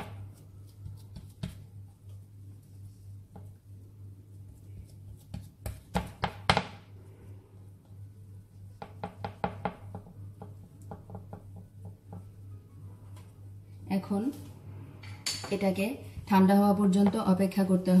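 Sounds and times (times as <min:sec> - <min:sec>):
spatula knocking on tray: 0:08.8 - 0:12.3.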